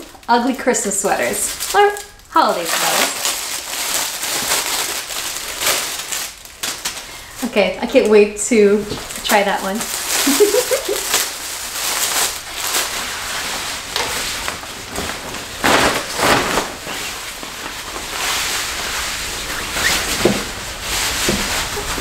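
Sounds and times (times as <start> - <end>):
nylon cape rustling and swishing: 9.8 - 22.0.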